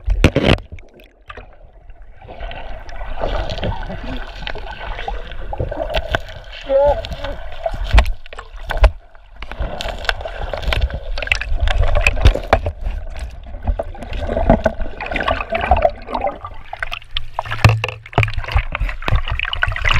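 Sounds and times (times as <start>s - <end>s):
underwater river current gurgling: 0.0s - 19.9s
water splashing: 0.0s - 19.9s
sharp clicks and knocks: 16.9s - 19.9s.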